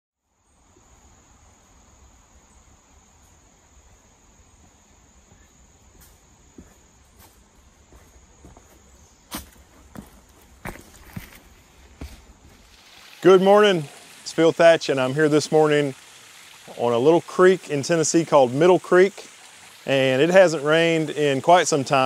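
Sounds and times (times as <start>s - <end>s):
high insect drone: 0.3s - 22.0s
footsteps on rock: 6.0s - 12.7s.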